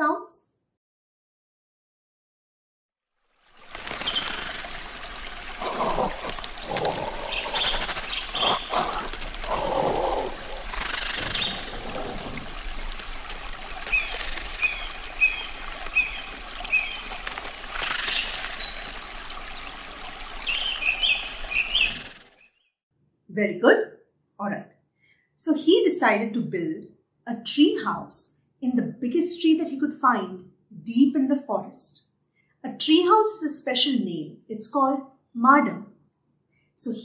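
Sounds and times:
trickle of running water: 3.0 - 22.4
birds calling: 5.6 - 13.0, 20.4 - 22.7.

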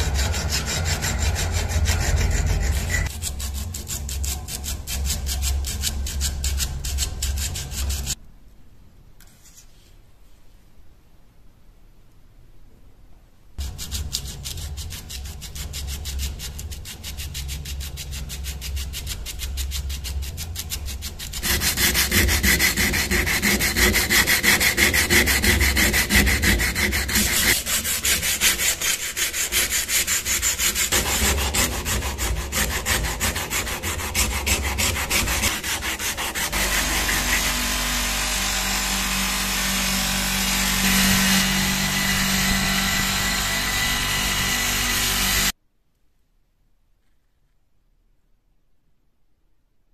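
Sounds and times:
sanding sponge scrubbing steel blade: 0.0 - 8.2, 13.6 - 45.5.

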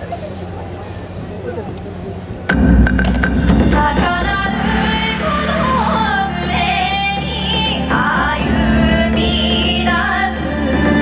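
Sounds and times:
dance music over loudspeakers: 2.5 - 11.0
high voice singing: 3.5 - 11.0.

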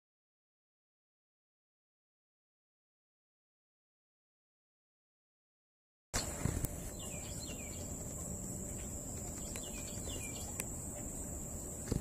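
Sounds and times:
insects droning: 6.2 - 12.0.

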